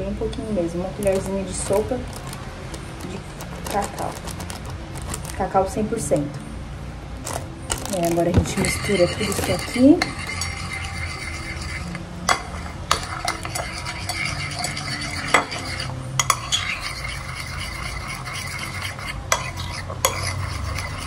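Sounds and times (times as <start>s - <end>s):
spoon stirring batter: 1.0s - 5.5s, 7.2s - 21.0s
spoon clinking against bowl: 8.4s - 21.0s.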